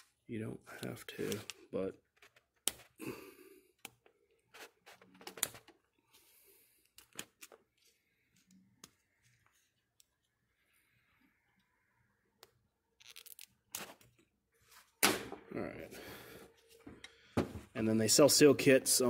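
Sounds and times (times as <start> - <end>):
small clicks and scrapes of handling: 0.8 - 3.0, 12.4 - 14.3.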